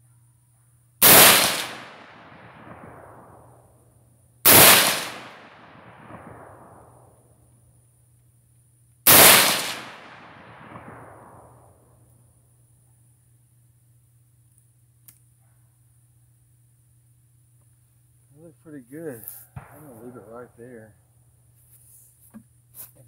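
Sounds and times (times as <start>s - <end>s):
rifle shots with echo: 1.0s - 3.8s, 4.4s - 7.4s, 9.1s - 12.1s, 19.5s - 20.9s.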